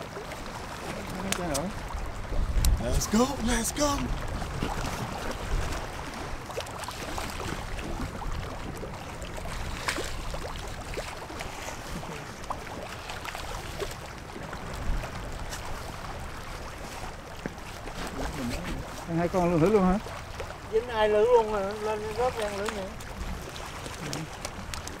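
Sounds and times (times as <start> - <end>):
wind on microphone: 0.0 - 12.8, 13.5 - 19.2.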